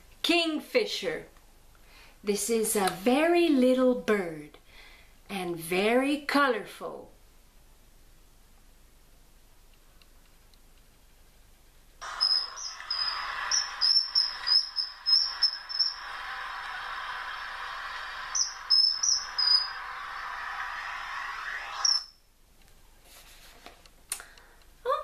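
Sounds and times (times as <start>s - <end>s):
steady background hiss: 0.0s - 25.0s
kingfisher shrill whistles: 12.0s - 16.1s, 18.3s - 19.9s, 21.1s - 22.2s.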